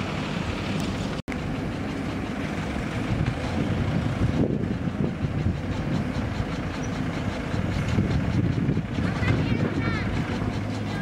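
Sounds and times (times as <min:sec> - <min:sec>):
backhoe loader engine running: 0:00.0 - 0:11.0
tractor diesel engine: 0:00.0 - 0:11.0.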